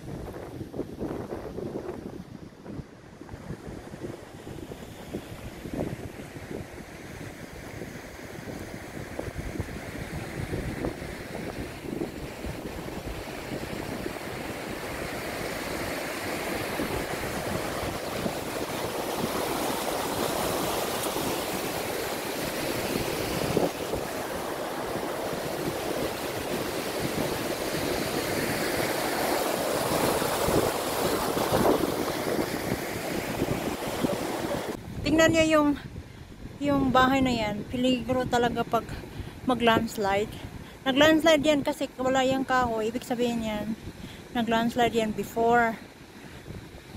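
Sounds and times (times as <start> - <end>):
wind buffeting microphone: 0.0 - 46.9
river rushing in white water: 6.6 - 34.8.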